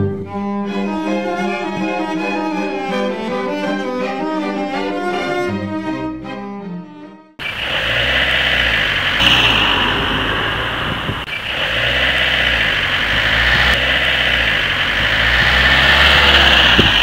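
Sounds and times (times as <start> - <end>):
trains passing rumble: 7.4 - 17.0.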